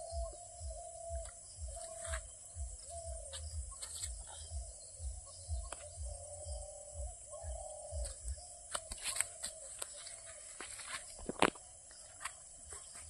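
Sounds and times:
low rumble on microphone: 0.0 - 8.6
monkeys moving over dry leaves: 1.2 - 4.6, 8.0 - 13.0.

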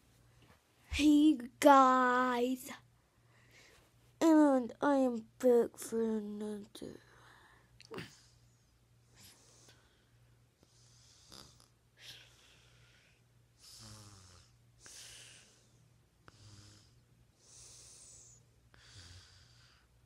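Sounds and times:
person breathing softly: 3.0 - 4.0, 6.9 - 14.0, 14.8 - 20.0
low buzzing snore: 7.0 - 20.0.

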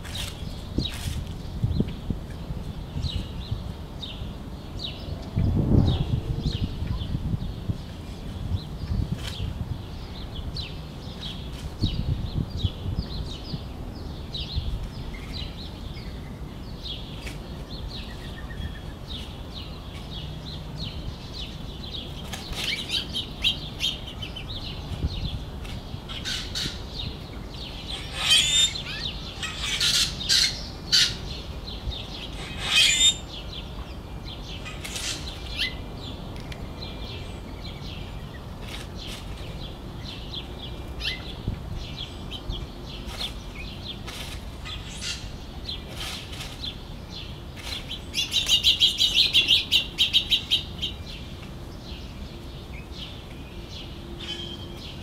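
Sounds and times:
steady low rumble: 0.0 - 16.8
small songbirds chirping: 0.0 - 55.0.

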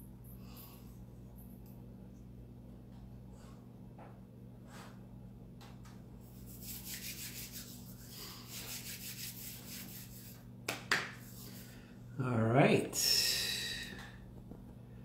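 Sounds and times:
hands rubbing together: 6.2 - 10.4
sharp hand claps: 10.7 - 11.2.

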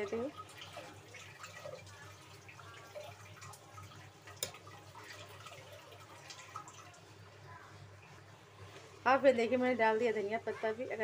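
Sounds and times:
lentils bubbling in a pan: 0.0 - 11.0.

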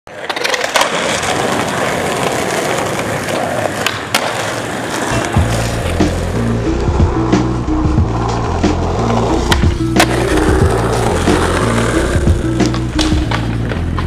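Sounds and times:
skateboard clacks: 0.1 - 14.0
skateboard wheels rolling on pavement: 0.1 - 14.0
music with repeating bass line: 5.4 - 14.0.

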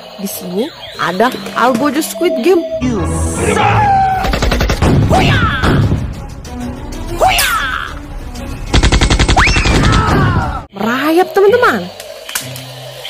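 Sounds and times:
swooping effects: 0.6 - 5.5
music: 1.1 - 10.7, 11.5 - 13.0
cartoon machine-gun fire: 8.7 - 10.6.

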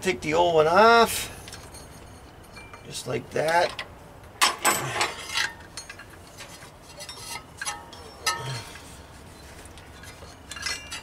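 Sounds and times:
belt clinking on pulleys: 10.0 - 11.0.

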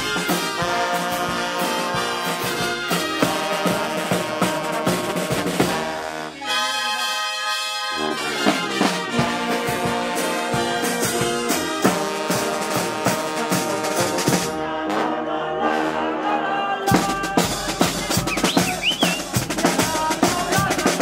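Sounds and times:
snare and bass drum beat: 0.0 - 6.1, 8.5 - 14.6, 16.9 - 21.0
brass band horns holding chords: 0.0 - 21.0.

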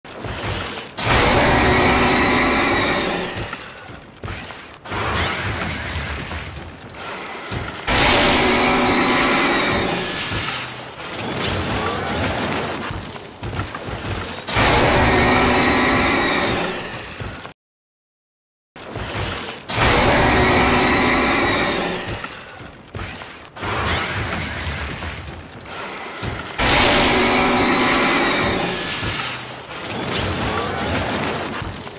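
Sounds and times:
monster roar: 25.7 - 31.4.

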